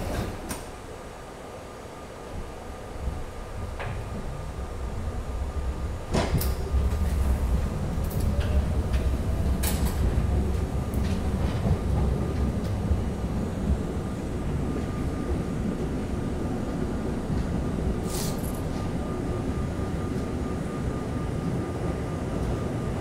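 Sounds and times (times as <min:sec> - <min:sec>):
subway wheels rumbling: 0:00.0 - 0:23.0
rail clacks: 0:06.0 - 0:19.2.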